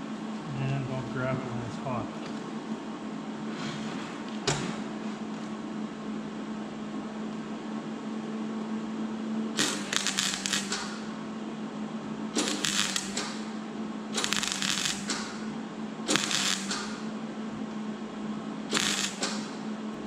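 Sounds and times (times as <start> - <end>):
steady hum: 0.0 - 20.0
welding arc crackle: 9.6 - 11.2, 12.4 - 17.2, 18.7 - 19.8.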